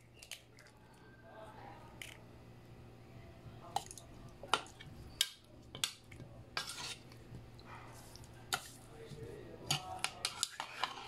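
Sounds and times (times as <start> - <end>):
spoon scraping bowl: 6.6 - 7.2, 9.7 - 11.0.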